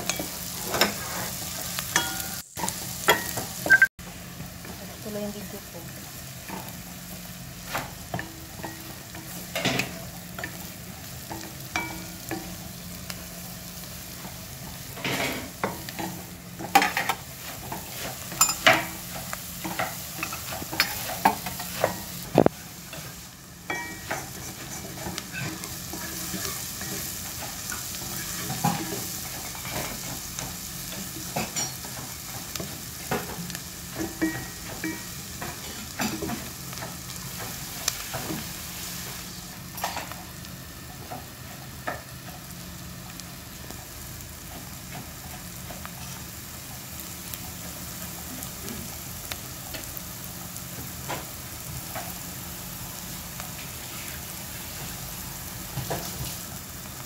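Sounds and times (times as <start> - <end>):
onions sizzling in oil: 0.0 - 57.0
spatula scraping a pot: 0.1 - 2.1.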